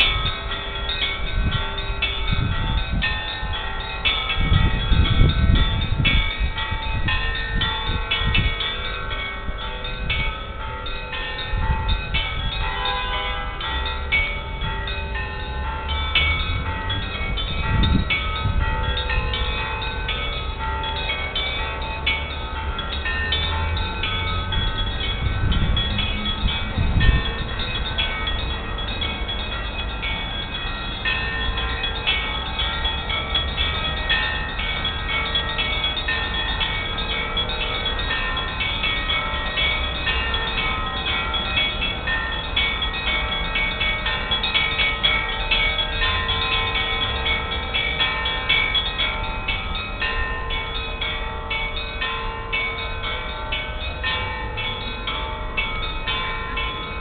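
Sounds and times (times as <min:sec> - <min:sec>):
church bells pealing: 0:00.0 - 0:57.0
low rumble on microphone: 0:24.5 - 0:27.7.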